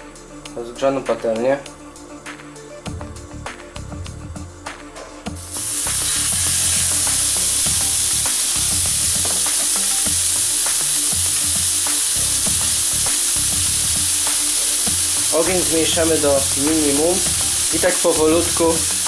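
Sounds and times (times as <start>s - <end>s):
meat sizzling on a grill pan: 5.4s - 19.0s.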